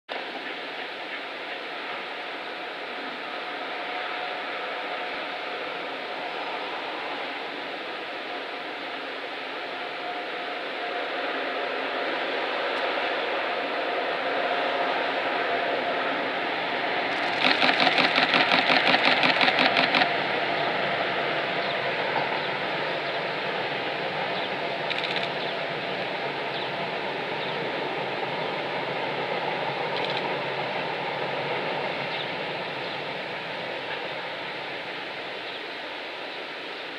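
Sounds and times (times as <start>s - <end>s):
train rolling noise: 0.1s - 36.9s
train clattering on bridge: 17.1s - 35.0s.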